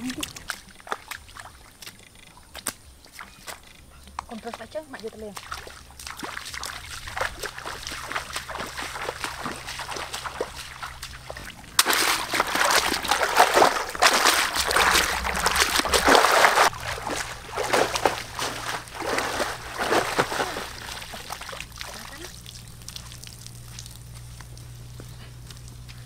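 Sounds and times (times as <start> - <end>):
splashing through shallow water: 0.0 - 26.0
basket swished through water: 6.6 - 22.2.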